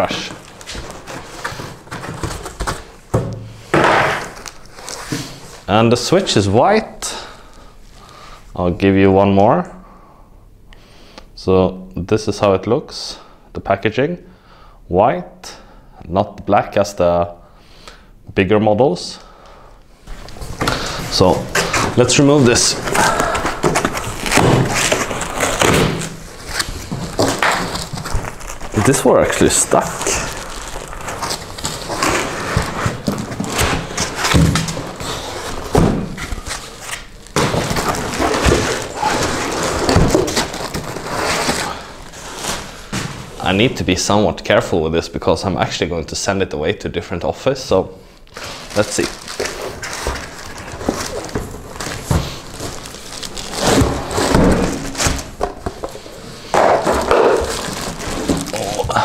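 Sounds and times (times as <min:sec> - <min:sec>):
cardboard and packing material rustling: 0:00.0 - 0:06.2, 0:20.0 - 0:43.8, 0:48.3 - 0:59.0
foam scraping against cardboard: 0:23.5 - 0:35.8.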